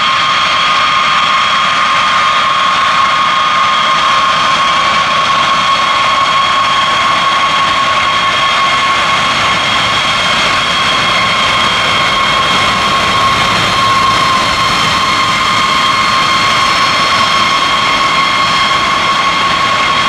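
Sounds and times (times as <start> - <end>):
jet engines whining: 0.0 - 20.0.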